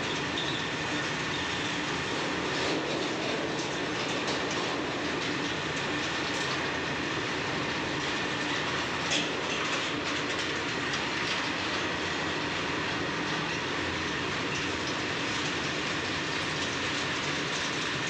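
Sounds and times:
train wheels rumbling on rail: 0.0s - 18.0s
train wagon clank: 2.0s - 6.8s, 8.0s - 11.6s.

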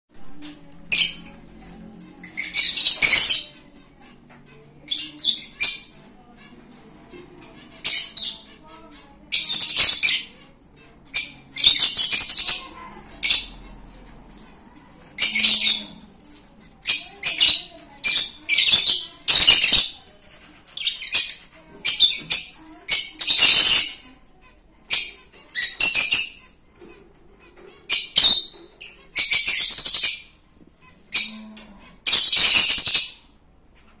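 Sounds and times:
birds screeching: 0.2s - 34.0s.

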